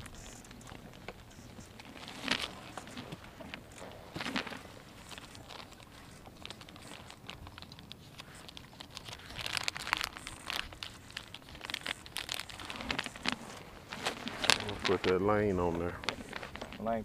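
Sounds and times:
plastic packets crinkling: 0:00.0 - 0:17.0.

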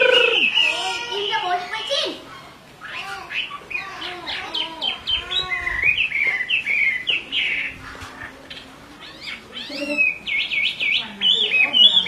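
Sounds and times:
bird singing whistled notes: 0:00.0 - 0:02.0, 0:09.1 - 0:12.0.

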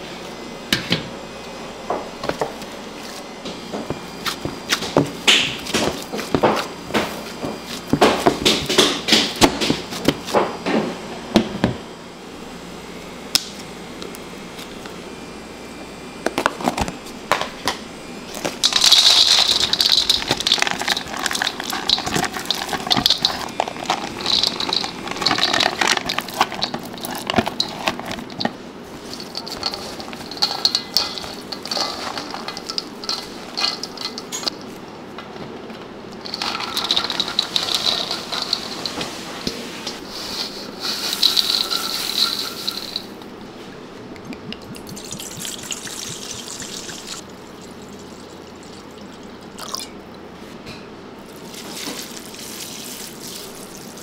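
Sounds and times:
rubbing or scraping strokes: 0:37.1 - 0:42.9.

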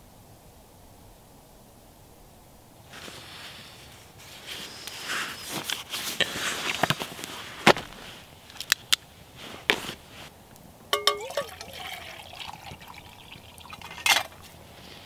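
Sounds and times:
clothing and bedding rustling: 0:02.9 - 0:08.5, 0:09.2 - 0:10.4, 0:14.4 - 0:15.0.

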